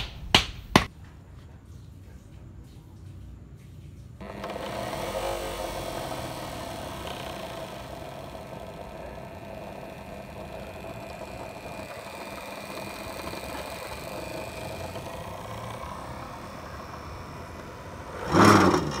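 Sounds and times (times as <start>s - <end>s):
drill press motor running: 4.2s - 19.0s.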